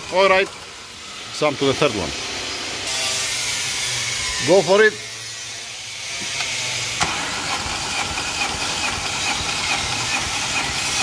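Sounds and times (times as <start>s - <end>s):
starter motor cranking engine: 6.4s - 11.0s.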